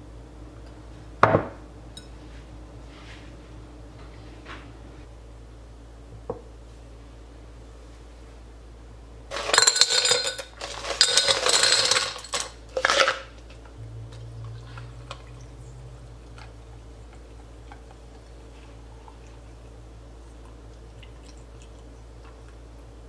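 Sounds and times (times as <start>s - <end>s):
ice cubes clinking into glass: 9.3s - 13.3s.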